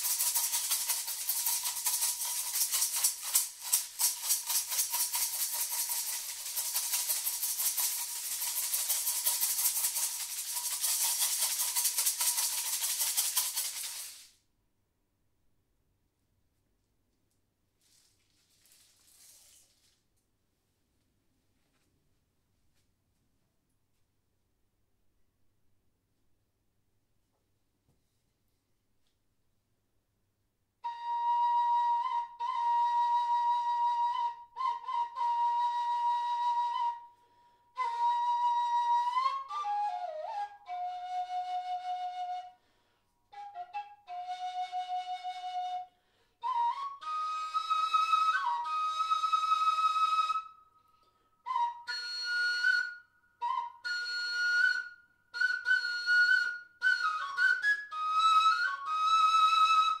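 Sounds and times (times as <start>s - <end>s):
flute playing slow melody: 30.8s - 37.1s, 37.8s - 42.6s, 43.3s - 50.7s, 51.4s - 60.0s.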